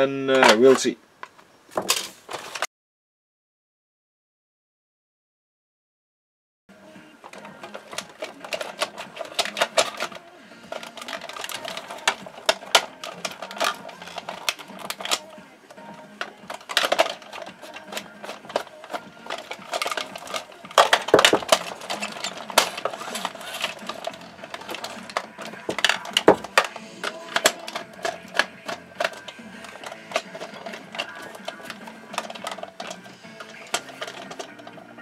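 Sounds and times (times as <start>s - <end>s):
plastic parts clicking and knocking: 0.3s - 2.7s, 7.2s - 35.0s
screwdriver removing screws: 16.2s - 34.8s.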